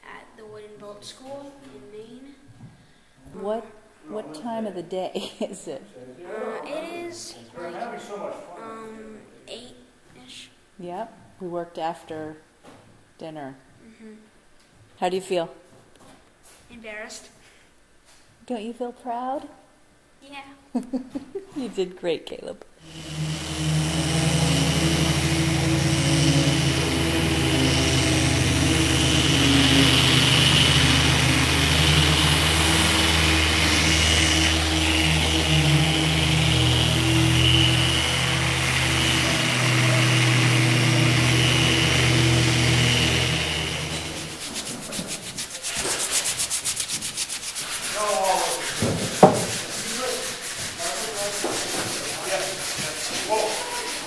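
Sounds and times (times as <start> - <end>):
electric sander on wood: 22.8 - 54.0
sharp knock: 48.8 - 49.6.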